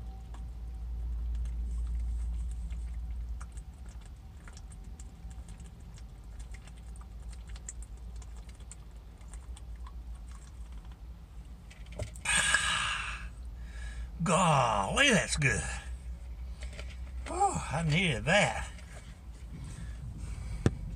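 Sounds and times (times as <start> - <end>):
person gulping water: 1.7 - 11.2, 12.0 - 13.9, 15.6 - 20.9
low rumble: 18.6 - 20.9.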